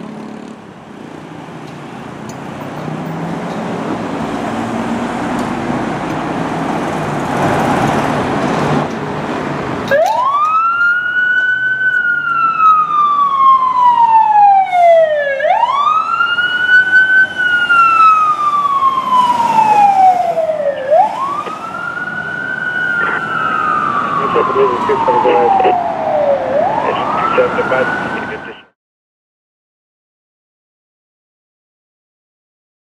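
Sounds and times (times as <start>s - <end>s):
fire engine rumbling: 0.0s - 28.7s
electronic siren wailing: 9.9s - 28.7s.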